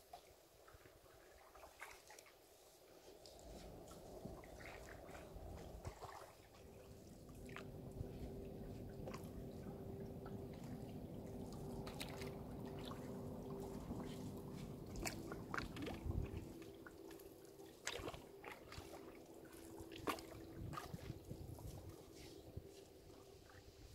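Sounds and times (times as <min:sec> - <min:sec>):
water lapping against hull: 0:00.0 - 0:23.9
faint steady hum: 0:02.7 - 0:23.9
water dripping from paddle: 0:03.2 - 0:21.7.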